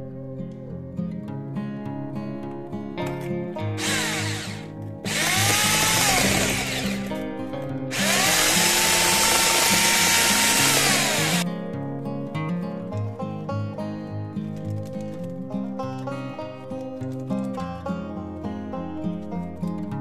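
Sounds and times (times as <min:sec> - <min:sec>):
guitar music: 0:00.0 - 0:20.0
electric hand mixer whine: 0:03.8 - 0:07.2, 0:07.9 - 0:11.4.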